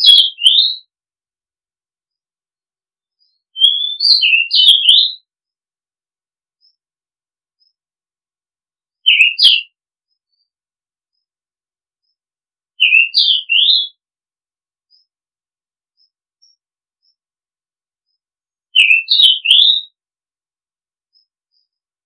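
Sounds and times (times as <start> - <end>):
bird singing whistled notes: 0.0 - 0.9, 3.2 - 5.3, 9.0 - 10.5, 12.8 - 14.0, 18.1 - 20.0.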